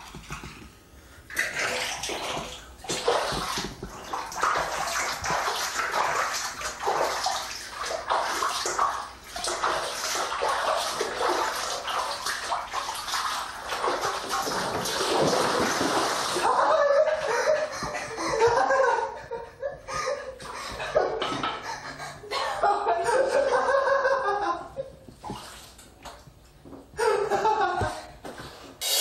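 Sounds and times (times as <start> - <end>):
bathwater splashing: 1.3 - 19.0, 25.2 - 26.4.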